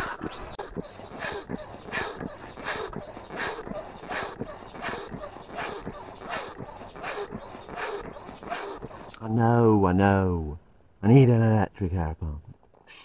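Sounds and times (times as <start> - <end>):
foot pump squeaking and wheezing: 0.0 - 9.2.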